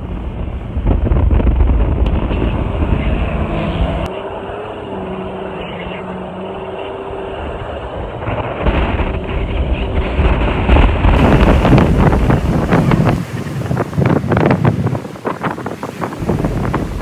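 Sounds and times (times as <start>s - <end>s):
wind buffeting microphone: 0.0s - 4.1s, 7.5s - 17.0s
car engine droning: 0.0s - 17.0s.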